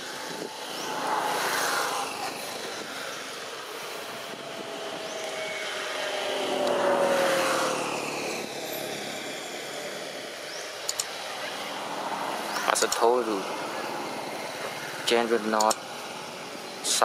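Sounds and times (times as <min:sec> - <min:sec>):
motor passing by: 0:00.0 - 0:16.9.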